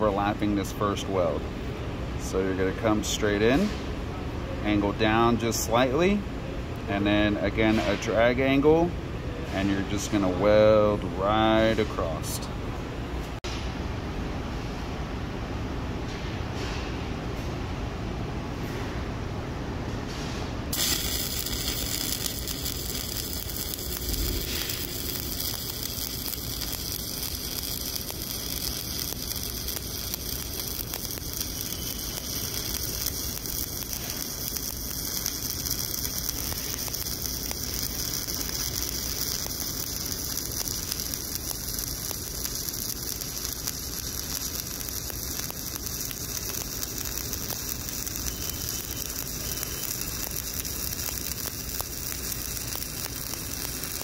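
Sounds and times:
welding arc: 0:20.7 - 0:54.0.

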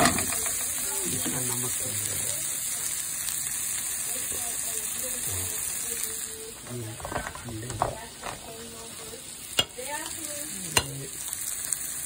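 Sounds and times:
onions sizzling in a pan: 0:00.0 - 0:12.0
eggs tapping on pan rim: 0:09.6 - 0:10.2.

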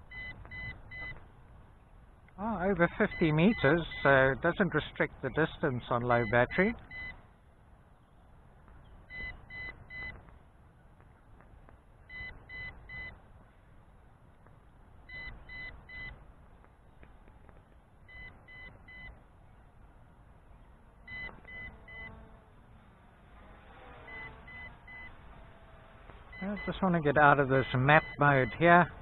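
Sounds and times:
short high warning beeps: 0:06.2 - 0:07.2, 0:09.1 - 0:10.2, 0:12.1 - 0:13.1, 0:18.1 - 0:19.1, 0:21.1 - 0:22.1, 0:24.1 - 0:25.1, 0:26.3 - 0:26.9, 0:27.6 - 0:28.6.

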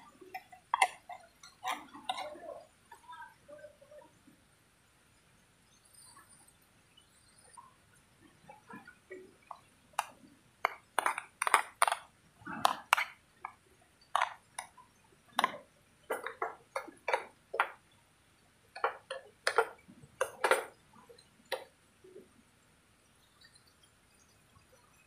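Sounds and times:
spoon scraping a metal pan: 0:00.3 - 0:02.5.

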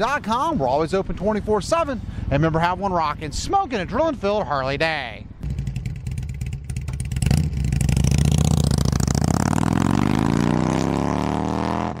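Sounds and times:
motorcycle engine revving: 0:05.4 - 0:12.0.

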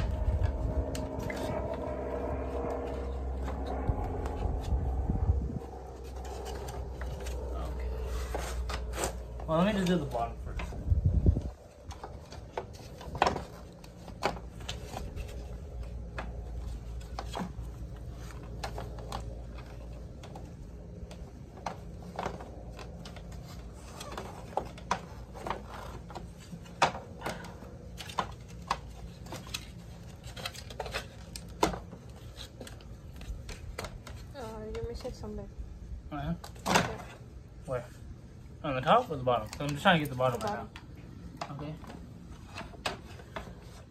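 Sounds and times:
steady low rumble: 0:00.0 - 0:23.8.

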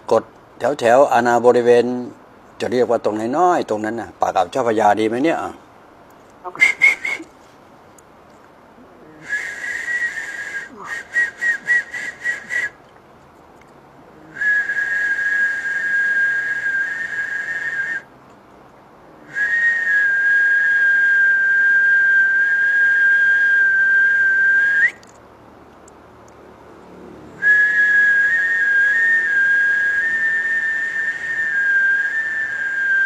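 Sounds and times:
person whistling high notes: 0:06.5 - 0:07.3, 0:09.3 - 0:12.8.

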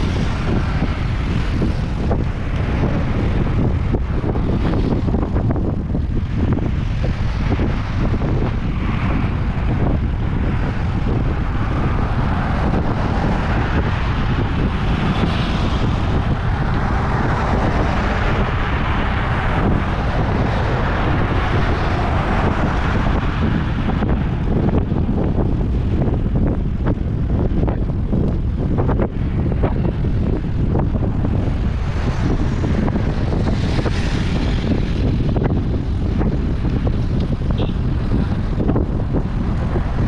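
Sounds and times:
low rumble of road noise: 0:00.0 - 0:40.0
wind rushing over microphone: 0:00.0 - 0:40.0.

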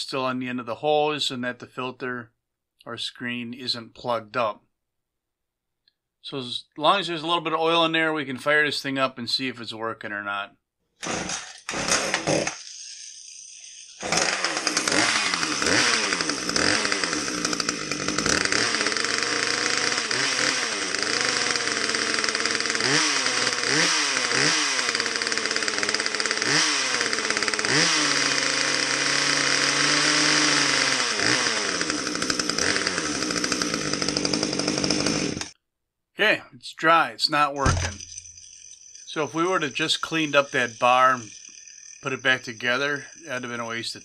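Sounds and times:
chainsaw engine revving: 0:11.0 - 0:35.6, 0:37.3 - 0:44.0.

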